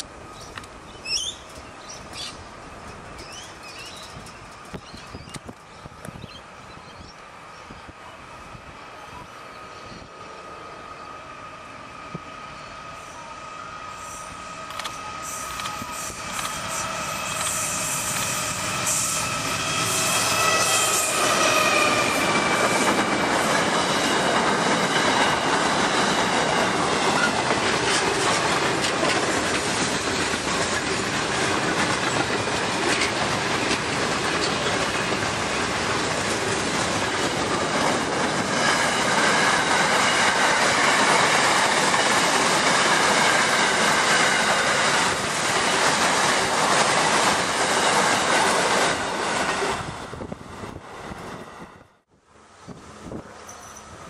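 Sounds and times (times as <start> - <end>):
diesel locomotive passing: 0.0 - 54.0
thin wheel squeal: 53.4 - 54.0.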